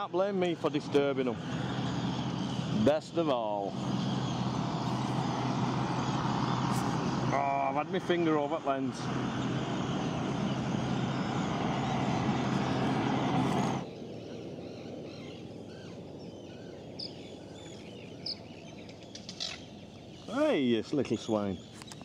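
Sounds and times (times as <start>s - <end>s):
terns chirping: 0.0s - 22.0s
loud rushing noise: 9.0s - 13.8s.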